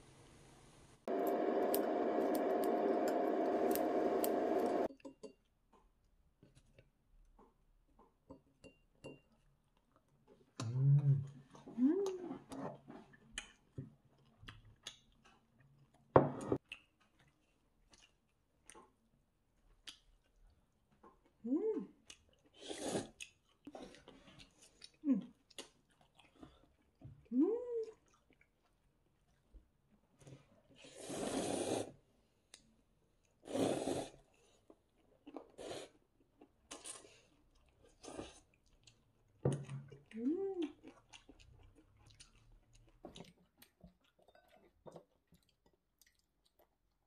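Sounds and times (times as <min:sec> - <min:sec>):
chewing fried chicken: 0:11.4 - 0:29.5, 0:34.3 - 0:47.0
crunchy food being chewed: 0:34.4 - 0:47.0.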